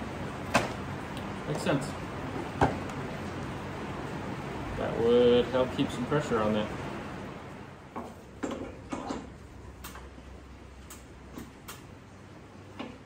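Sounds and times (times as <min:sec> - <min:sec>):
light clicks and taps of welding gun: 0:10.8 - 0:11.9.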